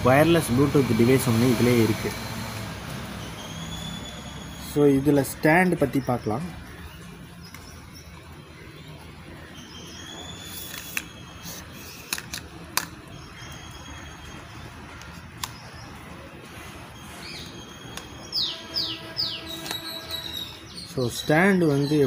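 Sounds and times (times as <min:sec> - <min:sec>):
faint birdsong: 0:00.0 - 0:22.0
plastic tripod clicks: 0:12.0 - 0:13.0.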